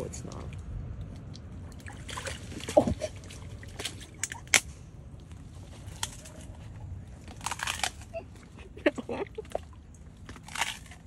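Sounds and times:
alligator jaws crunching phone: 0:07.2 - 0:08.1, 0:10.2 - 0:11.0.

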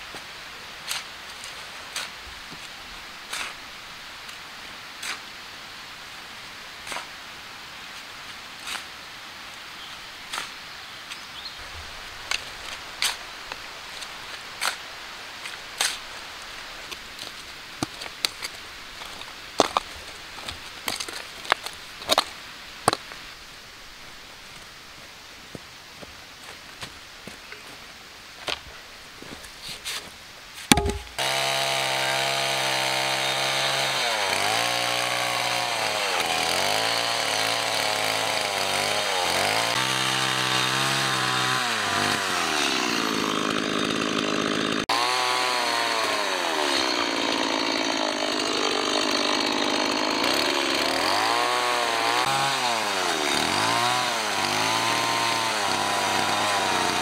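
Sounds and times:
shovel chopping into earth: 0:30.7 - 0:31.5.

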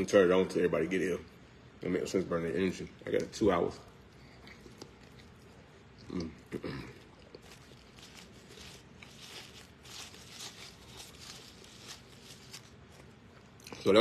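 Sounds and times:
paper napkin crumpling: 0:07.0 - 0:13.4.

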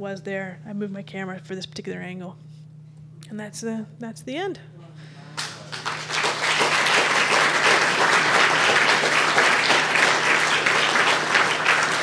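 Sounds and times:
faint low hum: 0:00.0 - 0:12.0
audience applauding: 0:05.4 - 0:12.0.

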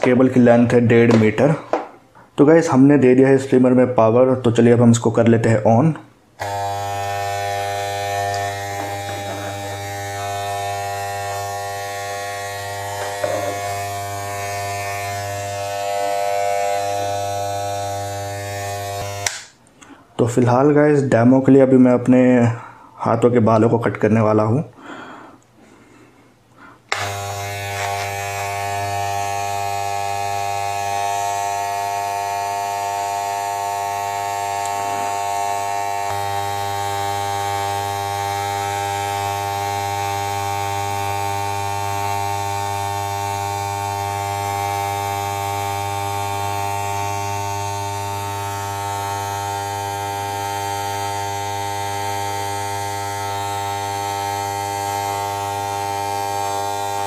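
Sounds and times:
hair clipper buzzing: 0:06.4 - 0:19.6, 0:26.9 - 0:57.0
hair clipper switch: 0:06.4 - 0:19.6, 0:26.9 - 0:57.0.

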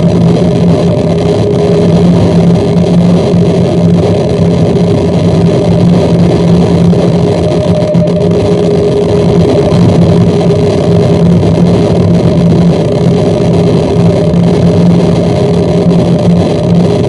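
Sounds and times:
distorted electronic noise: 0:00.0 - 0:17.0
steady low drone: 0:00.0 - 0:17.0.

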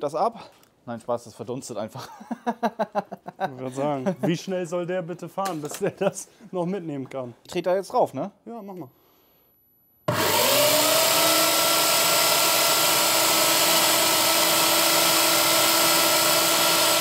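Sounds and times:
electric roller starter spinning: 0:10.1 - 0:17.0.

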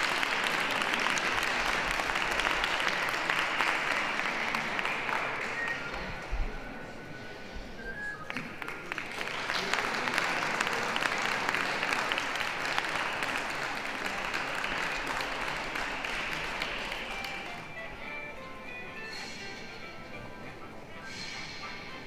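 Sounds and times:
audience applauding: 0:00.0 - 0:06.8, 0:08.2 - 0:19.0.

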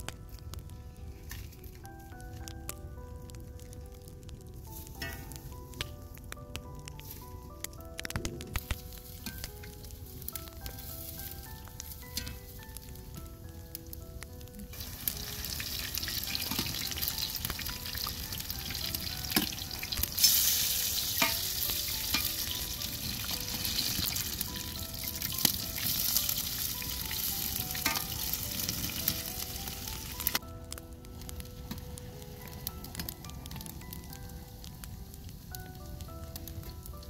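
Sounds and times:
patties sizzling in hot oil: 0:08.5 - 0:30.4.

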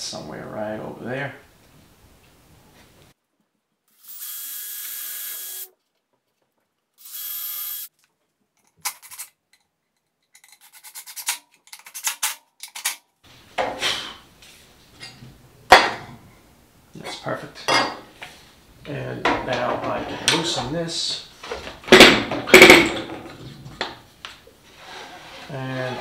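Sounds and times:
cordless drill boring wood: 0:04.0 - 0:05.7, 0:07.0 - 0:07.9.

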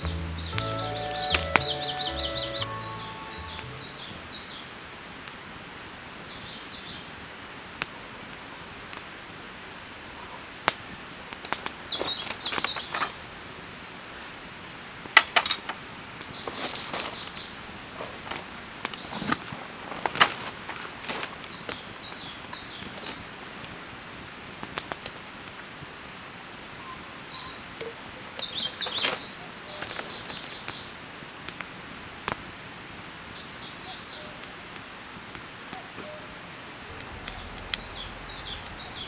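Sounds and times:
small birds chirping: 0:00.0 - 0:04.7
steady outdoor hiss: 0:00.0 - 0:39.0.

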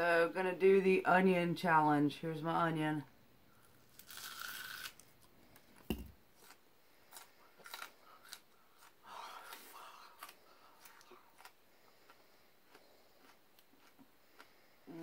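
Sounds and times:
chewing crunchy onion: 0:03.6 - 0:15.0.

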